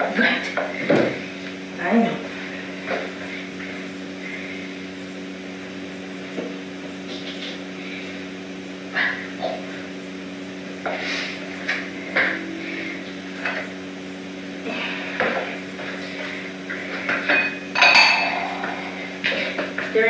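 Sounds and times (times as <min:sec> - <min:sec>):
steady low hum: 0:00.0 - 0:20.0
pet food bowls clinking on floor: 0:17.3 - 0:18.4.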